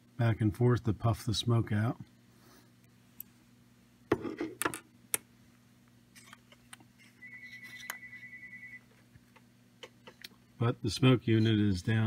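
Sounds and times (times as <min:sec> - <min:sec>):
faint high fluttering tone: 0:07.0 - 0:08.9.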